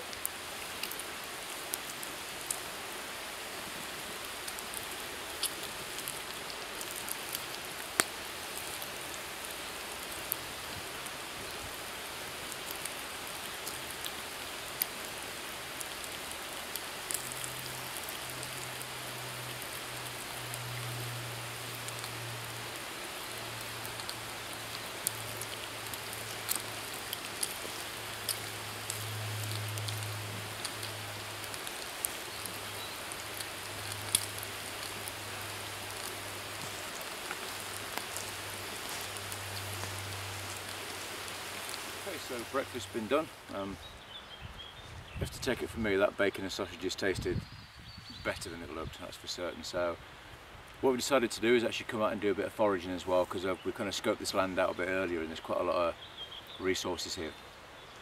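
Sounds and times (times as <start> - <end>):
bacon sizzling in a pan: 0.0 - 43.3.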